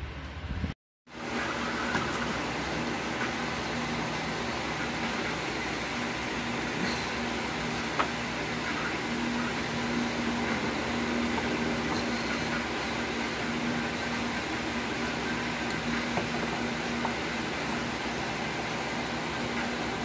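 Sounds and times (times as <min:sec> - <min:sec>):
machine hum and hiss: 0:00.0 - 0:20.0.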